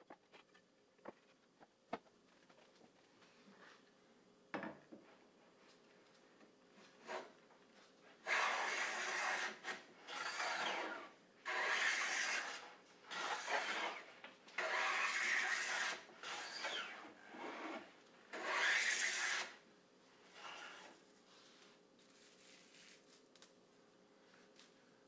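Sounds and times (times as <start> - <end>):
hand plane strokes on wood: 8.2 - 19.6.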